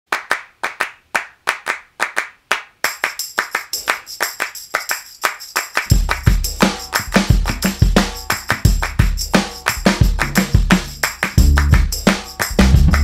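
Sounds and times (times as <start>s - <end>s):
hand claps: 0.1s - 13.0s
jingling tambourine: 2.8s - 13.0s
drums and bass: 5.9s - 13.0s.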